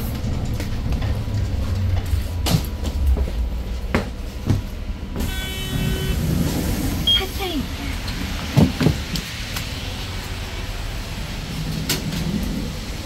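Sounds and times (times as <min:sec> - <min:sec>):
bus engine rumble: 0:00.0 - 0:13.0
knocks and rattles: 0:08.4 - 0:09.3.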